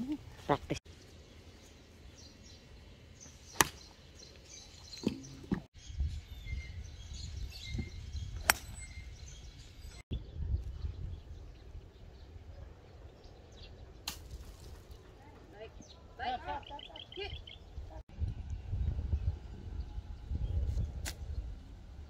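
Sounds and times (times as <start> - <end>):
golf club striking ball: 3.6 - 3.9, 8.4 - 8.8.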